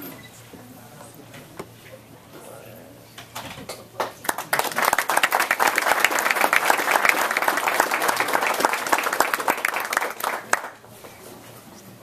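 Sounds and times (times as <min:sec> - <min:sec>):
audience applauding: 0:04.0 - 0:10.8.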